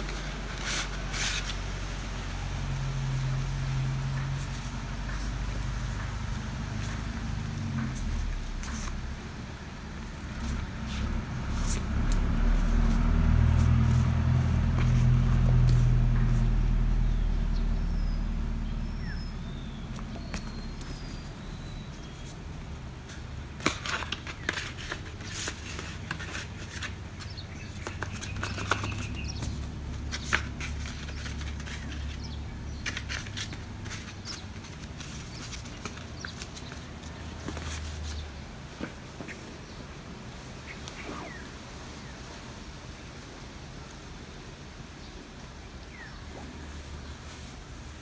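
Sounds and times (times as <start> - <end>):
paper sticker sheets rustling: 0.0 - 1.9, 4.0 - 9.2, 10.0 - 16.7, 19.9 - 39.4
low engine hum: 0.0 - 39.1
faint bird chirps: 17.1 - 22.4.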